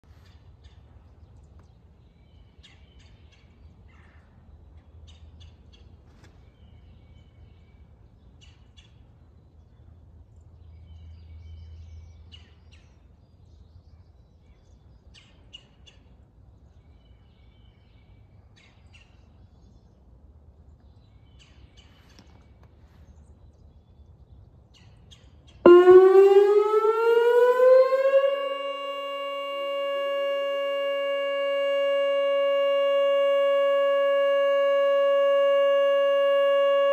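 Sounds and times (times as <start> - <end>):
rising electronic siren: 25.7 - 36.9.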